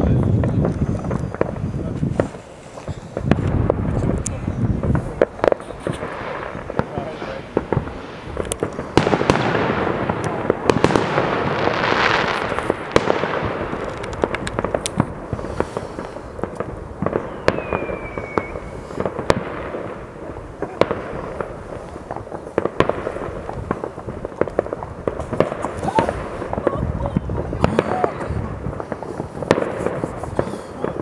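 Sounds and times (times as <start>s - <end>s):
crackling firework burst: 0.0s - 31.0s
distant fireworks rumble: 0.0s - 31.0s
sharp firework reports: 0.0s - 31.0s
falling firework whistle: 15.4s - 19.5s.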